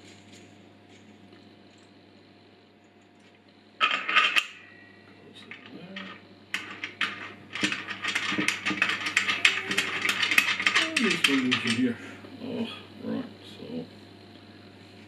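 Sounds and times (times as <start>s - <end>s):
rapid metal clicks and rattles: 3.8s - 4.5s, 5.4s - 11.9s
metallic clatter: 3.8s - 4.6s, 5.5s - 11.8s.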